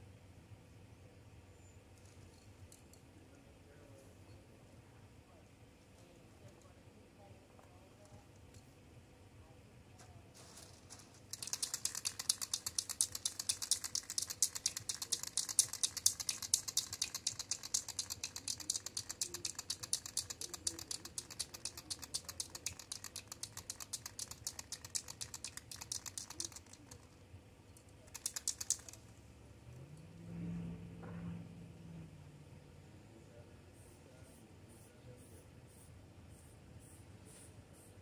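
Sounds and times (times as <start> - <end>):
spray can rattling: 10.4 - 27.1, 28.0 - 29.1.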